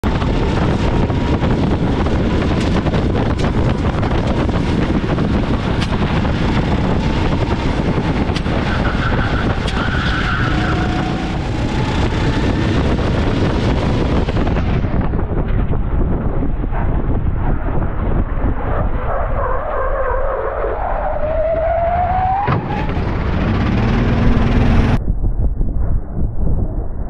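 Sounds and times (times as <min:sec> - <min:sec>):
wind buffeting microphone: 0:00.0 - 0:27.0
go-kart engine running: 0:00.1 - 0:19.0, 0:22.5 - 0:25.0
tyre squeal: 0:08.5 - 0:11.2.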